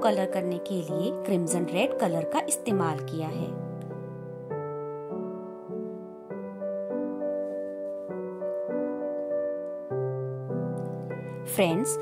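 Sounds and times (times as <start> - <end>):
soft background music chords: 0.0 - 12.0.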